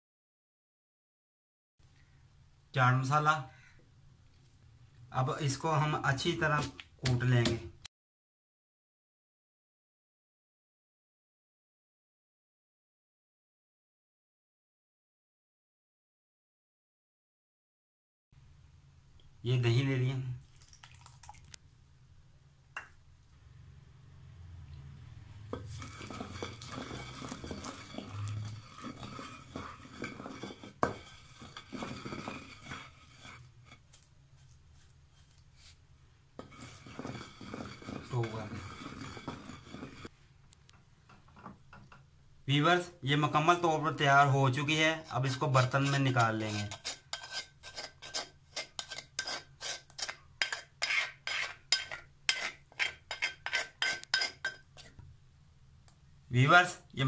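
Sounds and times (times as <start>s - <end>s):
metal spoon scraping a mortar: 25.6s - 35.8s, 36.4s - 40.1s, 44.6s - 55.0s.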